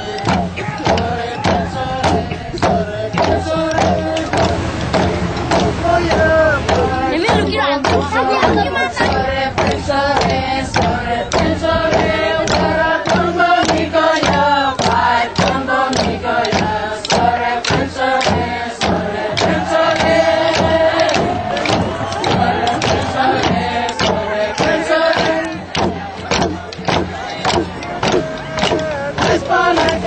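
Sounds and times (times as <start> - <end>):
group singing a chant: 0.0 - 30.0
steady drum beat: 0.0 - 30.0.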